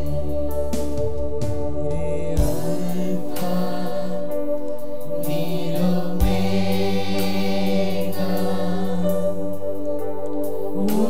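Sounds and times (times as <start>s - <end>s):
sustained instrumental chords: 0.0s - 11.0s
men singing together: 2.1s - 4.4s, 5.2s - 9.4s.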